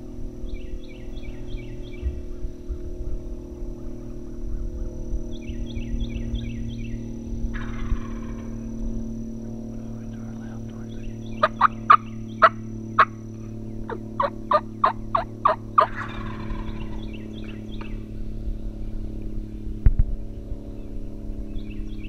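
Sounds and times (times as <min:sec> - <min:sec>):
turkey yelps: 0:07.6 - 0:08.5, 0:11.4 - 0:13.2, 0:13.9 - 0:17.0
turkey rattle: 0:11.4 - 0:13.2, 0:13.9 - 0:16.9.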